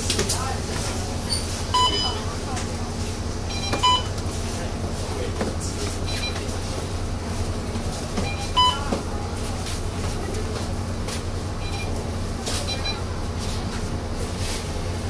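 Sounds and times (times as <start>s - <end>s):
bus diesel engine idling: 0.0s - 15.0s
card reader beep: 1.7s - 2.3s, 3.5s - 4.2s, 6.0s - 6.5s, 8.2s - 8.9s, 11.6s - 12.0s, 12.6s - 13.0s.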